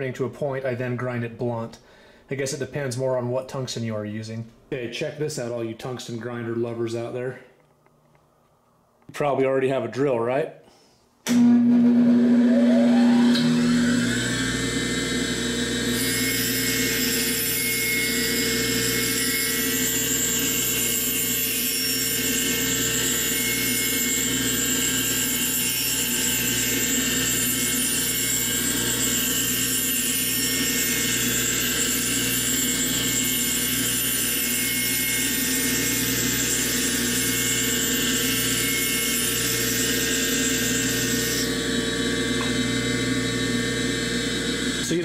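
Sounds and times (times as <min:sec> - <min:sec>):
grinding wheel and drill whine: 0:11.3 - 0:45.0.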